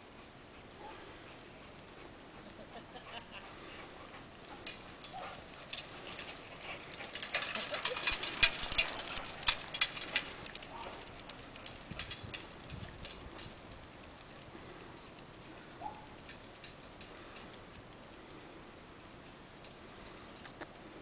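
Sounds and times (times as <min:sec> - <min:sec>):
dog claws clicking on asphalt: 0:04.2 - 0:18.0.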